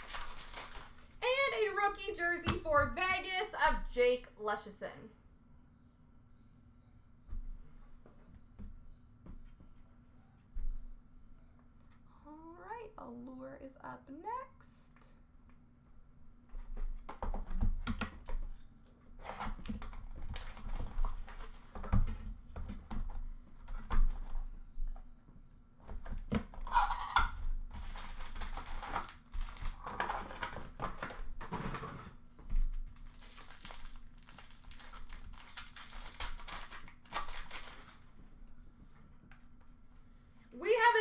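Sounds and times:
foil packs crinkling and tearing: 0:00.0 - 0:01.2, 0:19.2 - 0:21.8, 0:26.2 - 0:32.0, 0:32.6 - 0:38.1.

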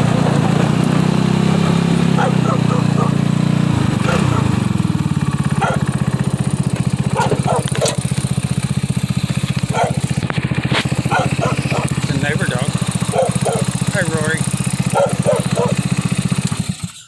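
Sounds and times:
buggy engine idling: 0:00.0 - 0:17.0
dog barking: 0:02.1 - 0:03.2, 0:04.0 - 0:04.6, 0:05.5 - 0:06.0, 0:07.1 - 0:08.1, 0:09.7 - 0:10.1, 0:11.0 - 0:12.0, 0:13.1 - 0:13.8, 0:14.9 - 0:15.8.

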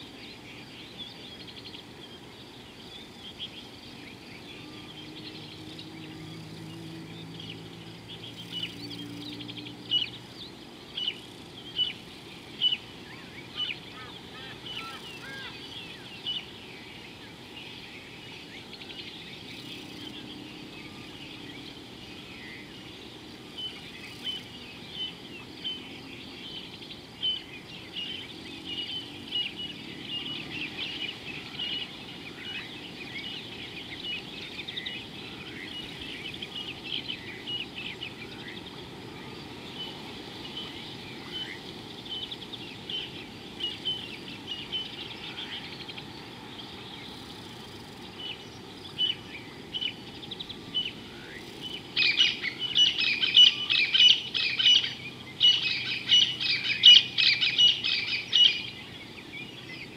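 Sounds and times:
wild birds chirping: 0:00.0 - 0:59.9.

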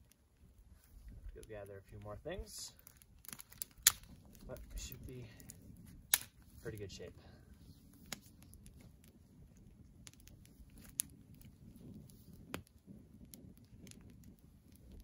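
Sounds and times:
campfire crackling and popping: 0:00.0 - 0:15.0
sharp wood snaps: 0:02.8 - 0:04.8, 0:05.4 - 0:06.4.

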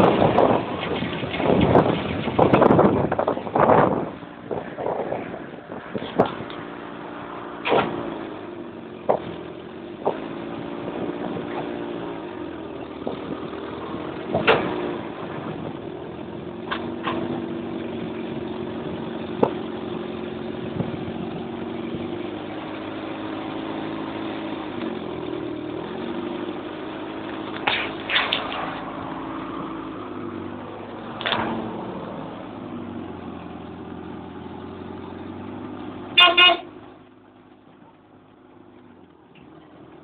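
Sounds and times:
car engine running: 0:00.0 - 0:40.0
sharp knocks and clunks: 0:07.6 - 0:08.1, 0:09.0 - 0:09.4, 0:10.0 - 0:10.3, 0:14.3 - 0:14.9, 0:16.6 - 0:17.4, 0:31.2 - 0:31.7.

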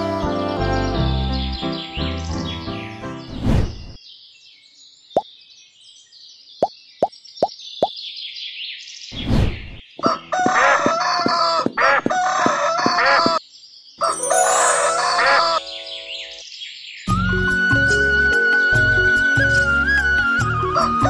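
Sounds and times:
faint bird chirps: 0:01.6 - 0:10.1
hen clucking and cackling: 0:14.8 - 0:15.7.

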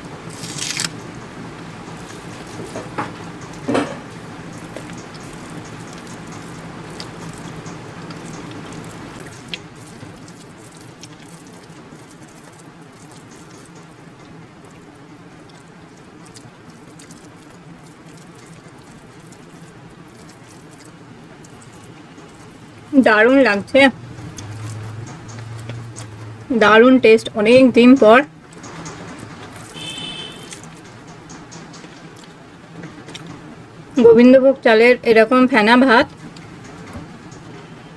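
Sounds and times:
chewing: 0:01.8 - 0:23.0, 0:23.9 - 0:26.5, 0:28.4 - 0:33.6
fingers squishing soft rice: 0:01.9 - 0:22.9.

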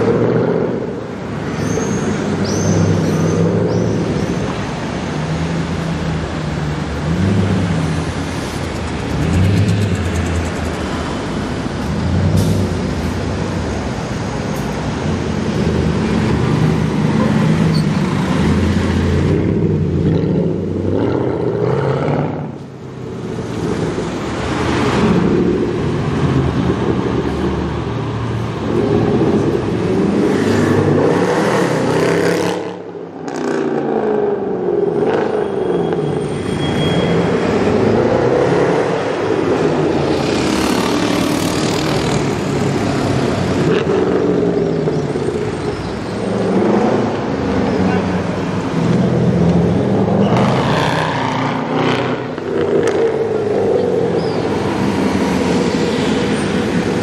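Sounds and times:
car engine revving and accelerating: 0:23.3 - 0:35.6, 0:37.2 - 0:57.0.

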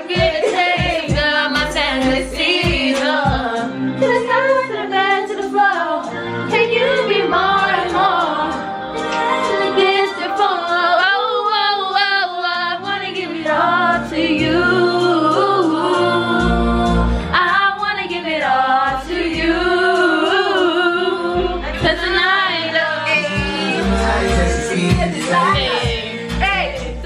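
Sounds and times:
song playing: 0:00.0 - 0:27.0
women singing along: 0:00.0 - 0:27.0
deep bass notes: 0:00.2 - 0:03.5, 0:15.9 - 0:17.4, 0:18.9 - 0:20.1, 0:20.8 - 0:27.0.

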